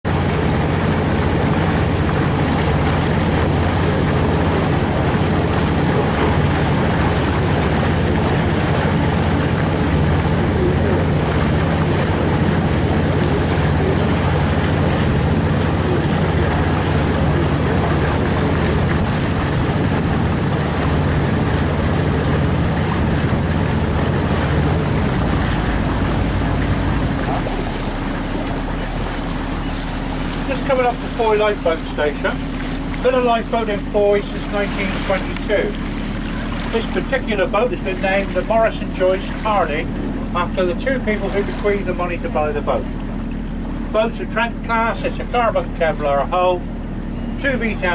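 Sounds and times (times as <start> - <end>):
motorboat engine humming: 0.0 - 47.9
water wash: 0.0 - 47.9
wind on microphone: 0.1 - 33.1.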